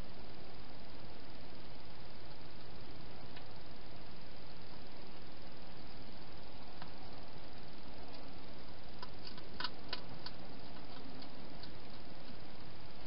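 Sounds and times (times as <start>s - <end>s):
steady hiss: 0.0s - 13.0s
hedgehog eating clicks: 9.0s - 12.4s.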